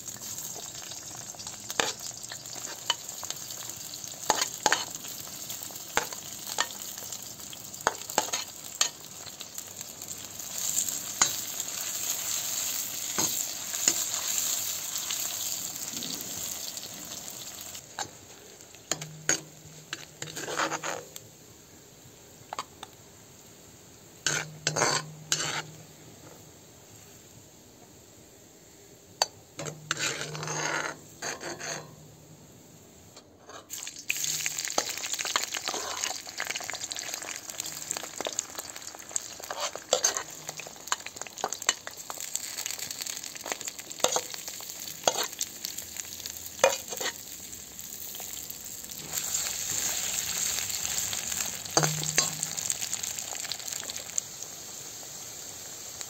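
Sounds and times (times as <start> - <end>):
onions sizzling in hot oil: 0.0 - 32.1, 33.6 - 56.0
metal ladle scraping a pan: 1.4 - 3.4, 4.3 - 5.0, 18.9 - 21.2, 24.2 - 25.8, 29.6 - 32.0, 35.6 - 36.2, 39.4 - 42.0, 43.4 - 45.4, 46.6 - 47.3, 49.0 - 52.8.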